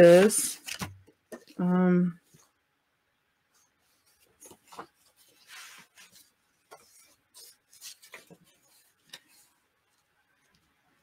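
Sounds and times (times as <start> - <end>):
paper rustling and tapping: 0.2 - 1.6, 4.2 - 9.5.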